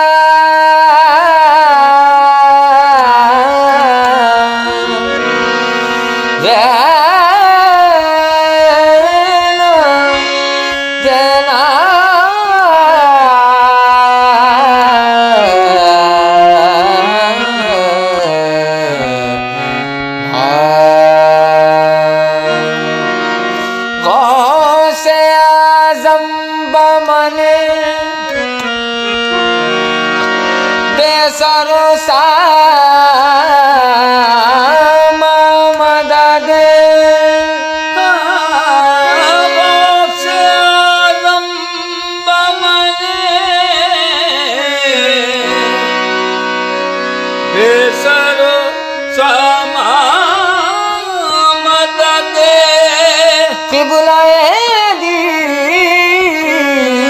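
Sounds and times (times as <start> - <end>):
harmonium: 0.0 - 57.0
person singing long notes: 0.0 - 57.0
tabla: 0.0 - 57.0.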